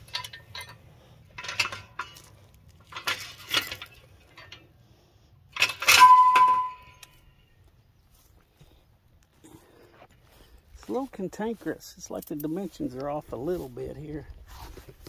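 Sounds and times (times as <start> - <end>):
metal clinking and clanking: 0.0 - 4.8, 5.5 - 7.2.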